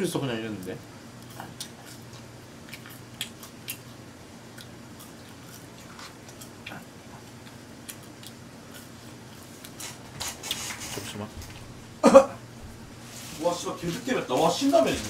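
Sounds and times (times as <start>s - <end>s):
chewing crunchy fries: 1.1s - 11.0s.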